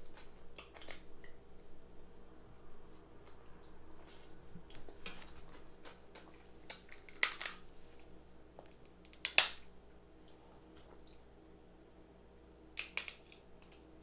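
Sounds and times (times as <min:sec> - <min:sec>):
crab shells cracking: 0:00.1 - 0:01.4, 0:04.7 - 0:07.7, 0:08.8 - 0:09.7, 0:12.8 - 0:13.9.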